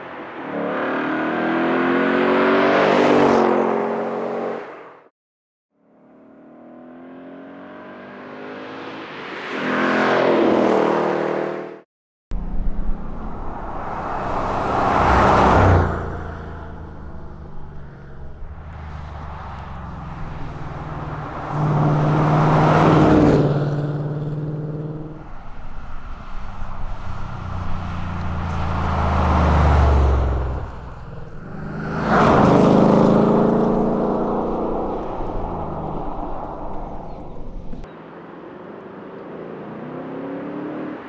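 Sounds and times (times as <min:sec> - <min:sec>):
car engine revving: 0:12.4 - 0:41.0.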